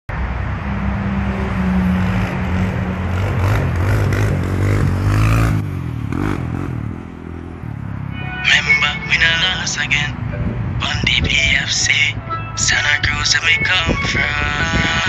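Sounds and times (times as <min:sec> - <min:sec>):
quad engine revving: 0:01.8 - 0:07.5.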